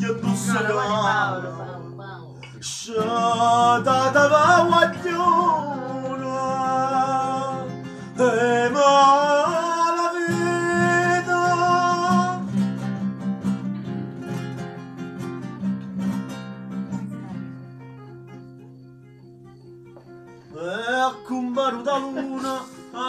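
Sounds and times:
plucked acoustic strings: 0:00.0 - 0:09.1
man singing with vibrato: 0:00.0 - 0:12.5, 0:20.5 - 0:23.0.

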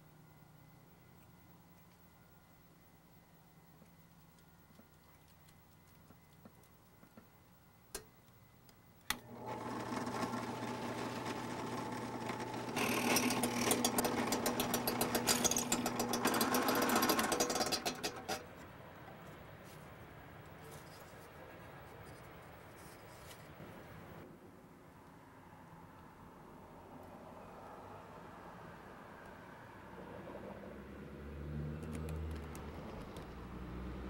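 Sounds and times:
drill press motor humming: 0:09.1 - 0:18.5
drill bit cutting wood: 0:09.2 - 0:18.4.

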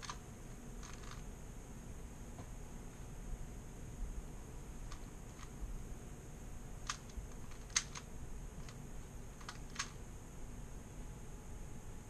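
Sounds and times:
plastic puzzle cube clicks: 0:00.8 - 0:01.2, 0:06.9 - 0:08.8, 0:09.4 - 0:10.0.

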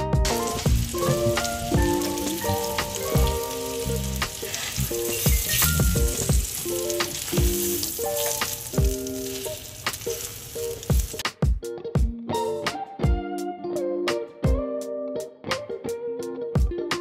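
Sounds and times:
background music with plucked notes: 0:00.0 - 0:17.0
food sizzling in a pan: 0:00.2 - 0:11.3.

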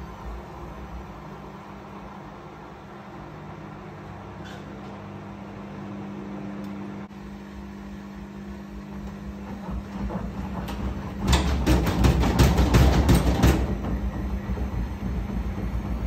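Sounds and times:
washing machine spinning: 0:00.0 - 0:16.0
washing machine knocking and banging: 0:08.7 - 0:16.0.

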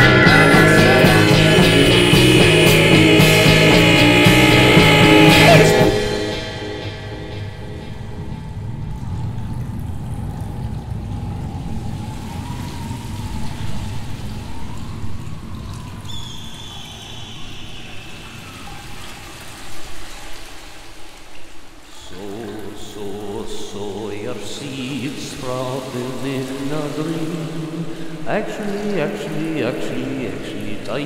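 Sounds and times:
low rumble: 0:00.0 - 0:15.9
thin high tone sliding downward: 0:00.0 - 0:18.9
trickling pouring water: 0:07.7 - 0:31.0.

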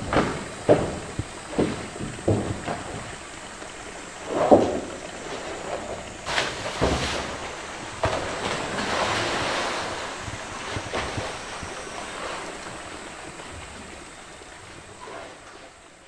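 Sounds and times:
water churning and sloshing: 0:00.0 - 0:16.0
big splash into water: 0:04.2 - 0:12.8.

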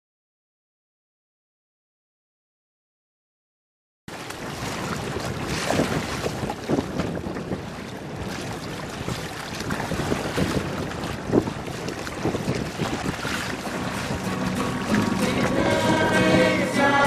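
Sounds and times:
splashing rushing water: 0:04.1 - 0:17.0
wind buffeting microphone: 0:04.1 - 0:17.0.

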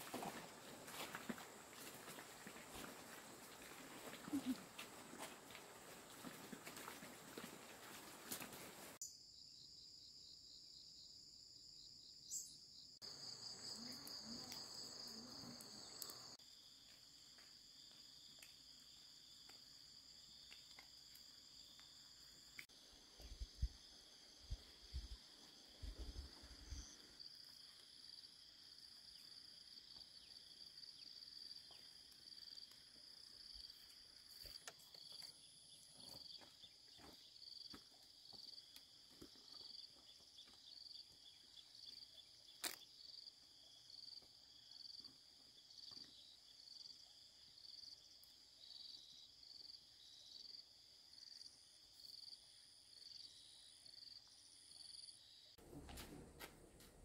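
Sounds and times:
insect chorus pulsing: 0:11.8 - 0:56.1.

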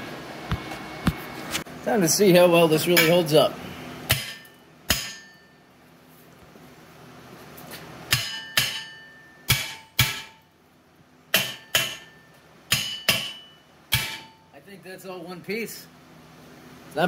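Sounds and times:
hammer striking steel: 0:02.9 - 0:03.3, 0:04.1 - 0:05.6, 0:08.1 - 0:10.5, 0:11.3 - 0:14.5.

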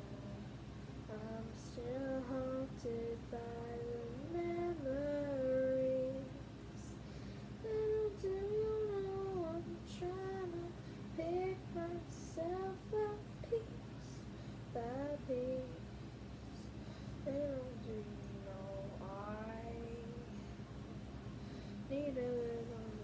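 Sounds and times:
girl singing slow melody: 0:00.0 - 0:23.0.

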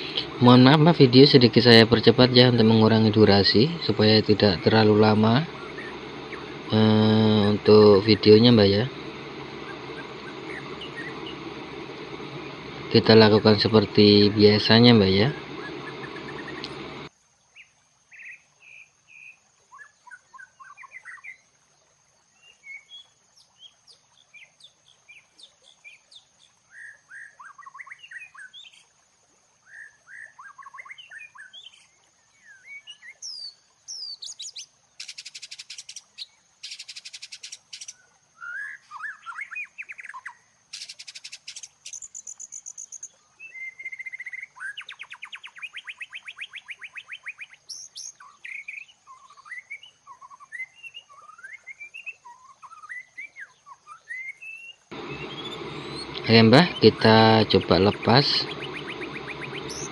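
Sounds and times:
birds chirping and twittering: 0:00.0 - 0:17.1, 0:30.2 - 0:59.9
rapid bird trill: 0:00.0 - 0:17.1, 0:34.2 - 0:38.0, 0:39.2 - 0:43.1, 0:54.9 - 0:59.9
thin steady high tone: 0:00.0 - 0:17.1, 0:54.9 - 0:59.9.

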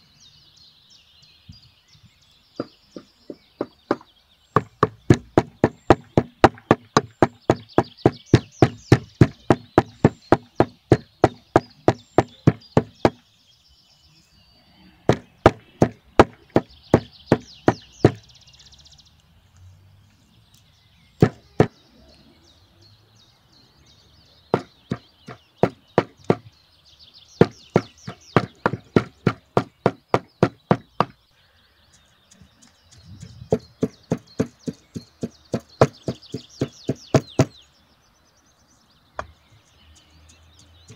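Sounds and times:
cleaver chopping meat on wood: 0:02.6 - 0:13.2, 0:15.1 - 0:18.2, 0:21.2 - 0:21.8, 0:24.5 - 0:26.5, 0:27.4 - 0:31.2, 0:33.2 - 0:37.6.

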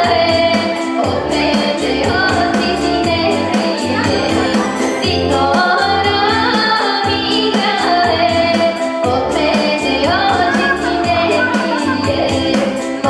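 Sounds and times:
voices singing folk song: 0:00.0 - 0:13.0
folk instrumental accompaniment: 0:09.9 - 0:13.0.

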